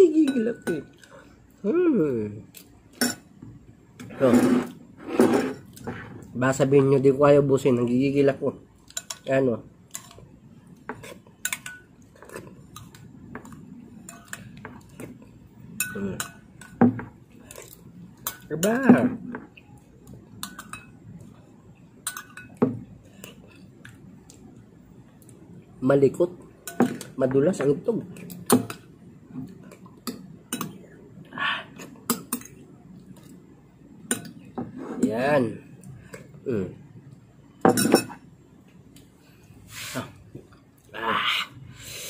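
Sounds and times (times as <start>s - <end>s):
metal spoon clinking on ceramic bowl: 22.0s - 22.6s.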